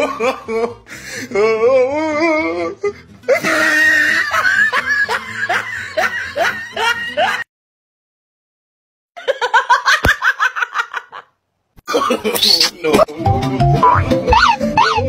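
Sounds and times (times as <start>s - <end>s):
laughter track: 0.0s - 0.8s, 3.3s - 7.5s, 9.2s - 13.1s
background music: 0.0s - 7.4s, 13.0s - 15.0s.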